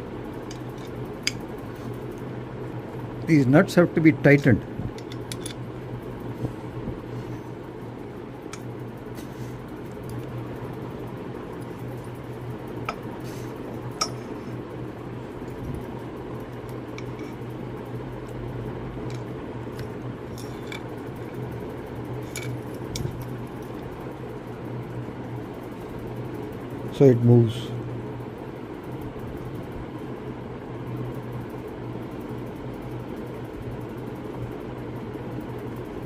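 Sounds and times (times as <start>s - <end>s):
steady background hum: 0.0s - 36.0s
spanner metallic clicks: 5.0s - 5.6s, 13.9s - 14.3s, 22.2s - 23.3s.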